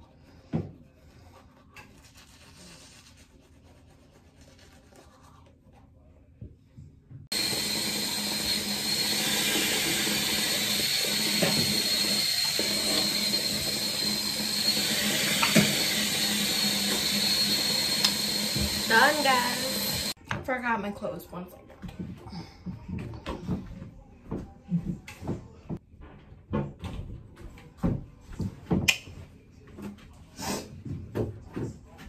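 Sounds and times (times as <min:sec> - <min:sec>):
toothbrush scrubbing teeth: 0:00.8 - 0:05.9.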